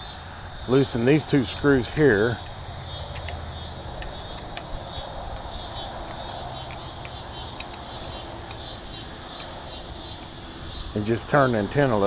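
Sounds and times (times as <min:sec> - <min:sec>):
insects chirping: 0:00.0 - 0:12.0
screwdriver metallic clicks: 0:02.4 - 0:03.4, 0:04.0 - 0:08.7.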